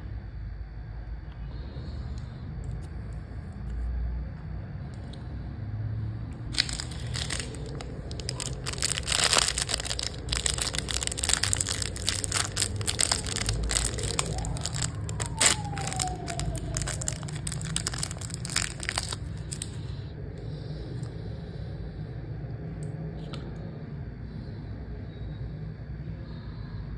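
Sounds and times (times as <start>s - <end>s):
plastic packet crinkling: 6.5s - 19.9s.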